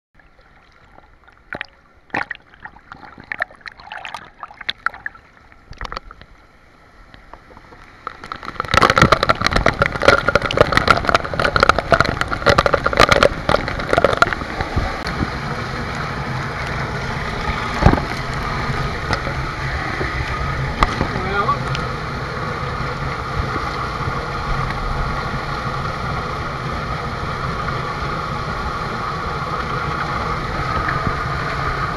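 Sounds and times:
water splashing and dripping: 0.2 - 6.4, 7.4 - 15.2.

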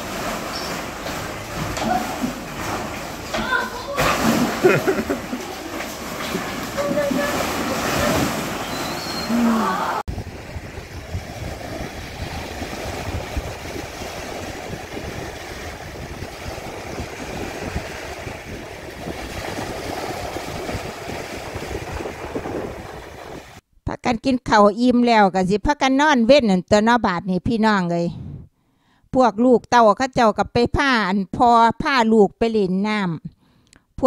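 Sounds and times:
small sea waves: 0.0 - 23.6
children playing: 3.3 - 6.0, 6.7 - 8.3
wind buffeting microphone: 10.1 - 23.6.

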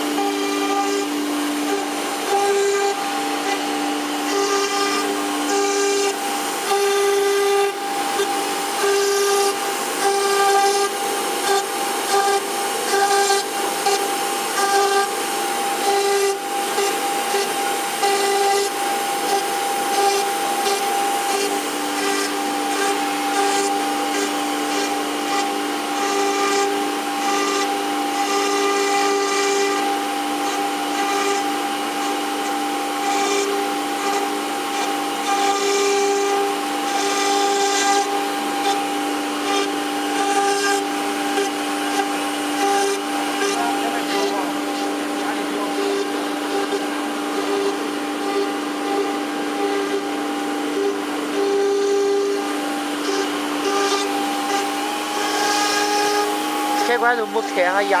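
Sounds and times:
router spindle whine: 0.0 - 58.0
dust extraction hiss: 39.4 - 58.0.

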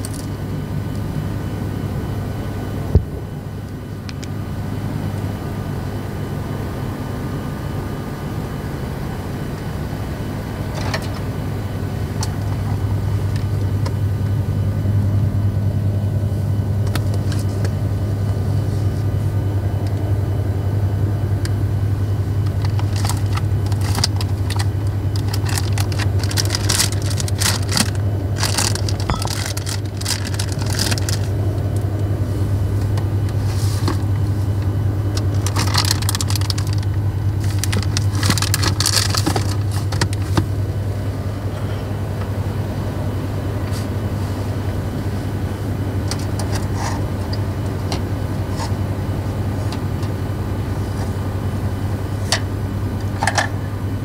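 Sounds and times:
diesel truck engine humming: 0.0 - 54.0
plastic packaging rustling: 22.5 - 31.4, 35.1 - 40.4.

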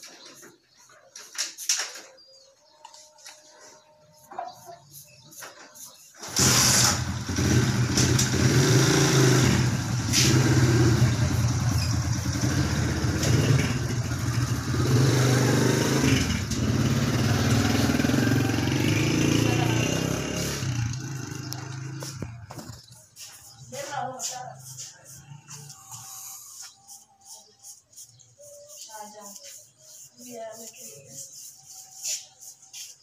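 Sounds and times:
loud engine running: 6.2 - 22.8.

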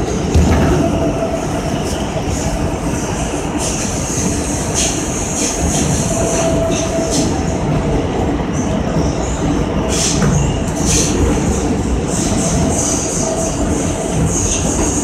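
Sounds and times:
train wheels rumbling on rail: 0.0 - 15.0
wheel squeal and hiss: 9.9 - 11.2, 12.1 - 15.0.

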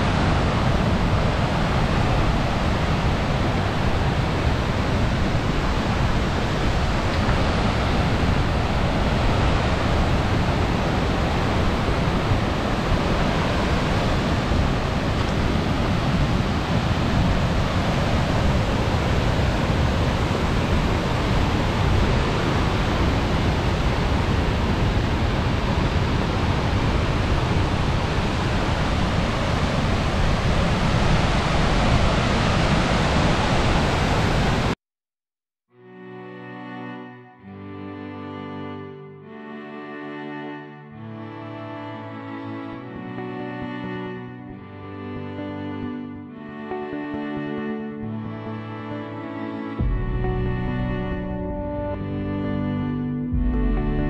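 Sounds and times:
waterfall rushing water: 0.0 - 34.8.

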